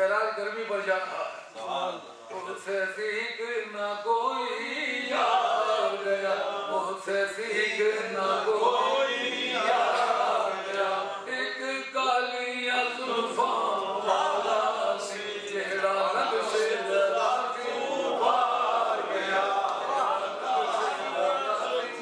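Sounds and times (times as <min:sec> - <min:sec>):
man chanting: 0:11.1 - 0:18.2.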